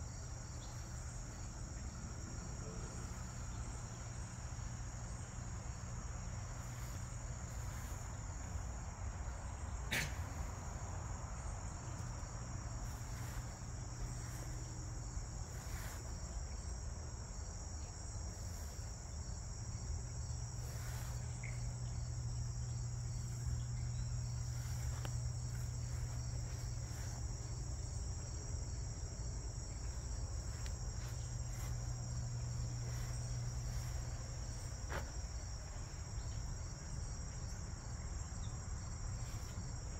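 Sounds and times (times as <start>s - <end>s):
crickets trilling: 0.0s - 39.9s
steady low hum: 0.0s - 39.9s.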